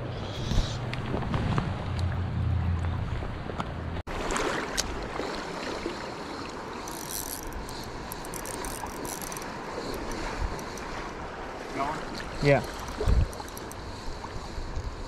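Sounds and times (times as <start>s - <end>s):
creek water flowing: 4.1s - 15.0s.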